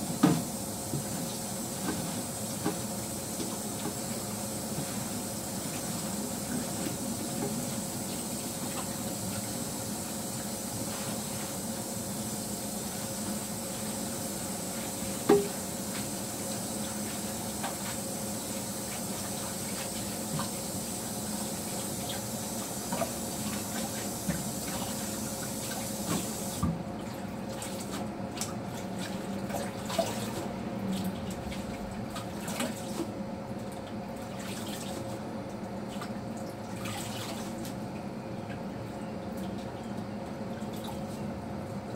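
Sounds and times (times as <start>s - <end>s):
tap water running into sink: 15.3s - 15.6s.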